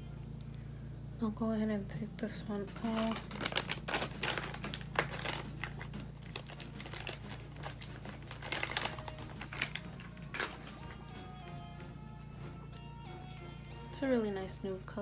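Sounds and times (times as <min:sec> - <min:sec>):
steady low hum: 0:00.0 - 0:15.0
material rustling and crinkling: 0:02.6 - 0:11.0.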